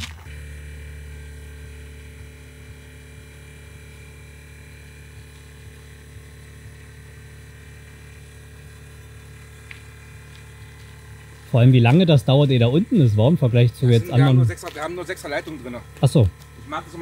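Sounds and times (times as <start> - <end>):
air suspension buzzing hum: 0.0 - 17.0.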